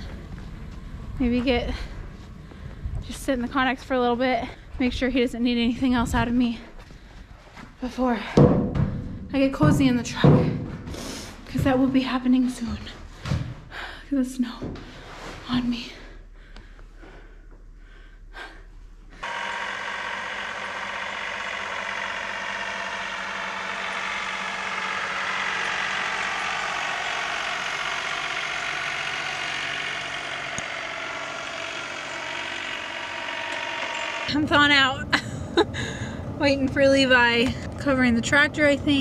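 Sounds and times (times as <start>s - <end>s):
tractor engine running under load: 19.2s - 39.0s.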